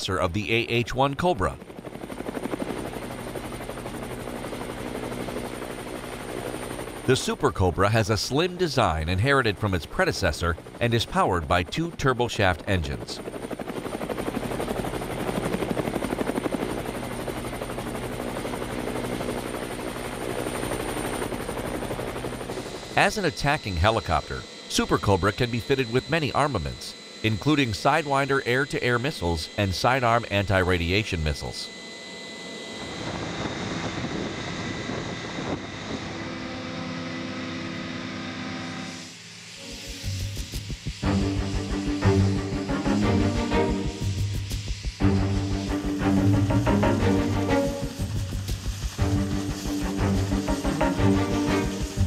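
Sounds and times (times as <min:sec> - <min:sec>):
helicopter rotor beat: 0:00.0 - 0:52.0
high turbine whine: 0:00.0 - 0:52.0
low multi-tone hum: 0:00.0 - 0:52.0
engine hum: 0:39.7 - 0:52.0.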